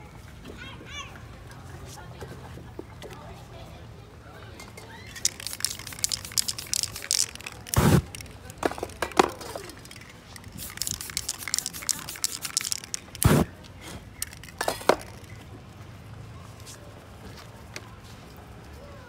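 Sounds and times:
aerosol spray hissing: 0:05.2 - 0:08.3, 0:09.9 - 0:13.5
spray cans clinking: 0:05.2 - 0:13.5, 0:14.1 - 0:15.4.

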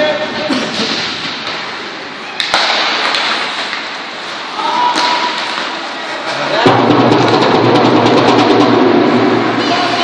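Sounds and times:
sticks and puck clacking on boards: 0:00.6 - 0:06.6.

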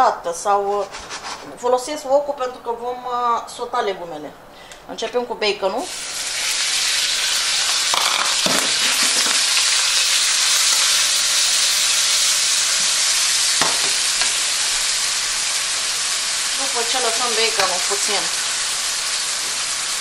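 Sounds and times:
bacon sizzling in oil: 0:05.7 - 0:20.0.

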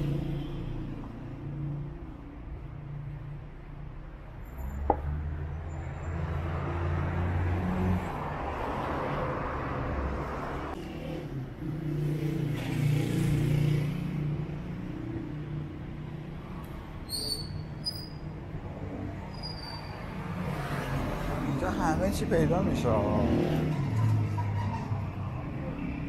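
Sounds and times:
vehicles passing by: 0:00.0 - 0:26.0.

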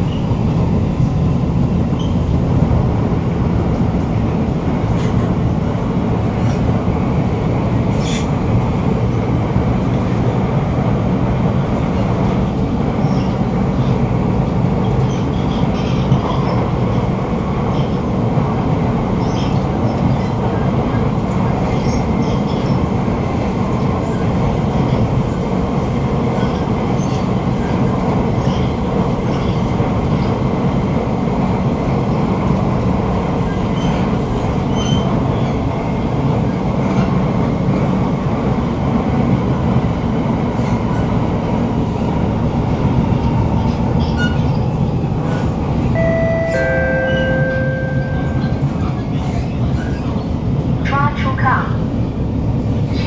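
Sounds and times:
metro wheels rumbling on rails: 0:00.0 - 0:53.0
two-note chime: 0:46.0 - 0:48.6.

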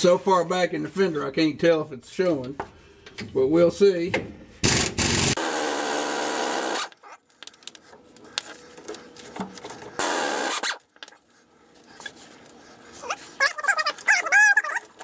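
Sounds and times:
pneumatic impact wrench hammering: 0:04.6 - 0:07.0, 0:10.0 - 0:10.8.

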